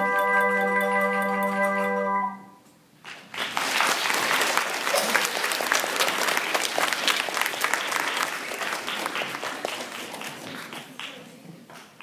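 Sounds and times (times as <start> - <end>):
audience applauding: 3.0 - 11.4.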